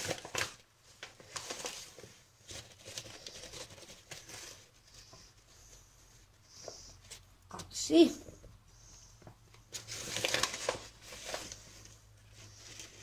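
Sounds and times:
flour bag rustling and crinkling: 0:00.0 - 0:04.9, 0:09.7 - 0:13.0.

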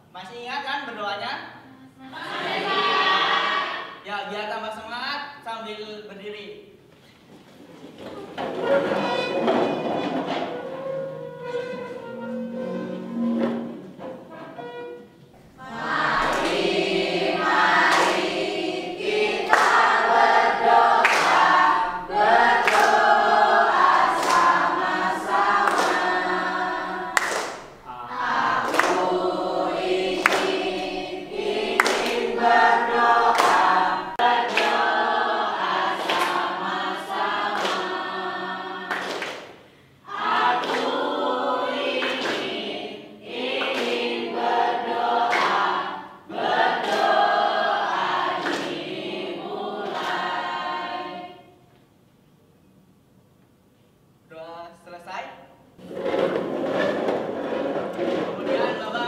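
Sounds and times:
students singing together: 0:02.0 - 0:04.1, 0:08.3 - 0:51.6, 0:55.8 - 0:59.0
rhythmic hand clapping: 0:15.6 - 0:51.2.

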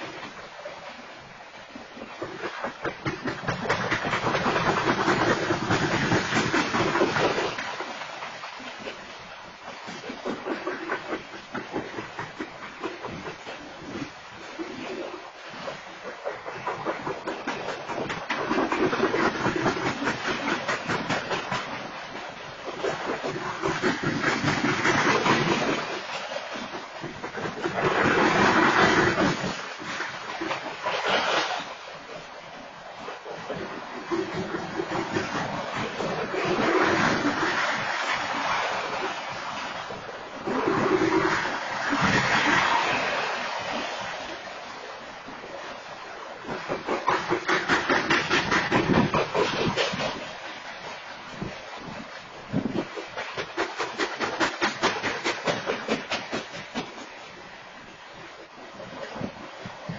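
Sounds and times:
train wheels clacking on rails: 0:02.4 - 0:07.7, 0:16.3 - 0:21.8, 0:46.5 - 0:50.3, 0:52.9 - 0:57.1.

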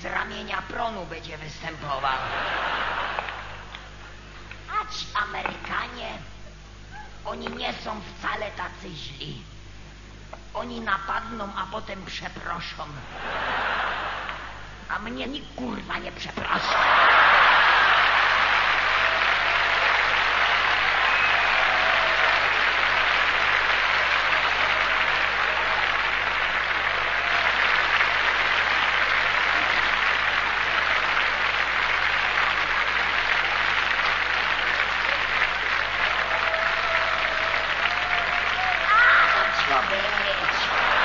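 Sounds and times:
audience applauding: 0:02.2 - 0:03.9, 0:16.4 - 0:41.0.

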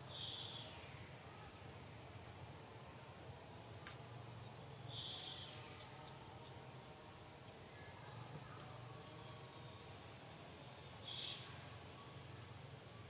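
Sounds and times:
insect high-pitched trill: 0:03.6 - 0:10.2, 0:10.9 - 0:13.0.

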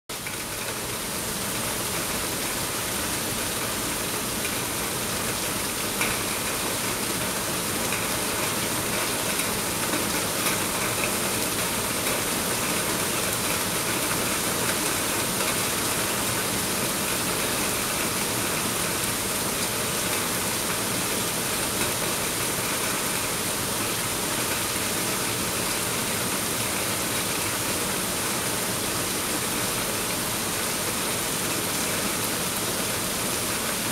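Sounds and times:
heavy rain on foliage: 0:00.1 - 0:33.9.

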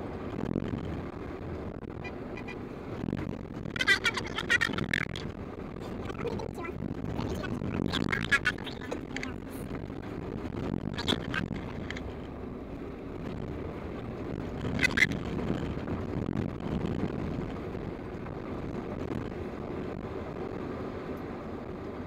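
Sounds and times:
engine and tyres rumbling: 0:00.0 - 0:22.0
sharp clatter: 0:03.5 - 0:09.8, 0:10.8 - 0:12.3.

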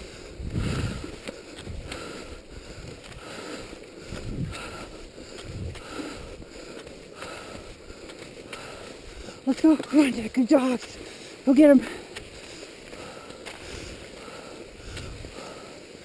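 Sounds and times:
wind rumble on microphone: 0:00.0 - 0:06.6, 0:14.7 - 0:15.7
skis swishing over snow: 0:00.0 - 0:16.0.

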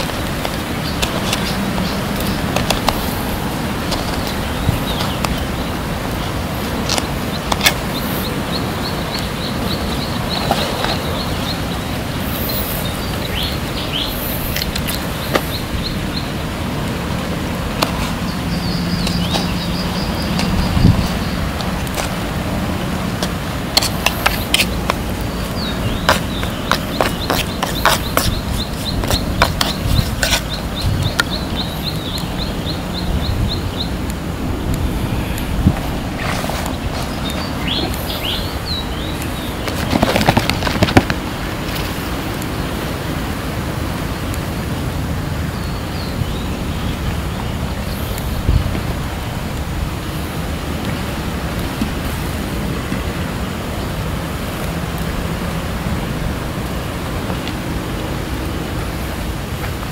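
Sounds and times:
bird chirping: 0:07.0 - 0:17.3, 0:18.0 - 0:21.6, 0:24.0 - 0:34.0, 0:34.6 - 0:41.0
steady low rumble: 0:09.4 - 0:39.7.

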